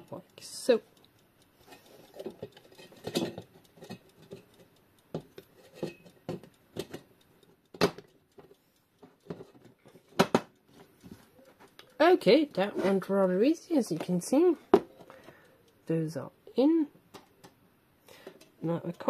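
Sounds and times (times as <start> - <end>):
metal clicks and scraping: 1.6 - 11.9.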